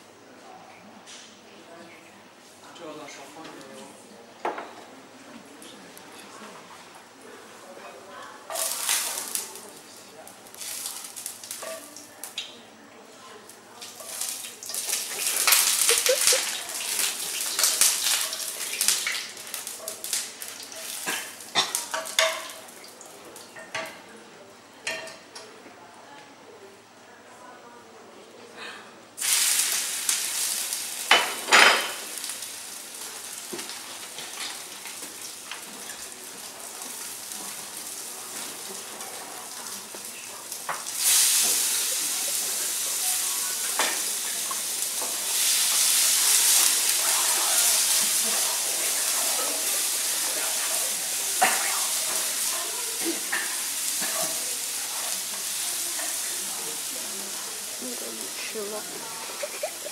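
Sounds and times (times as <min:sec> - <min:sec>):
food sizzling in frying pan: 0:08.5 - 0:12.5, 0:13.4 - 0:23.8, 0:29.2 - 0:59.9.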